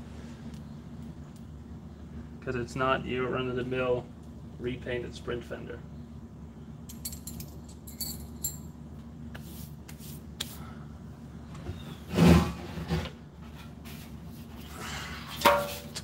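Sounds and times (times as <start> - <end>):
steady low hum: 0.0 - 16.0
light clicks and clinks: 6.9 - 8.7.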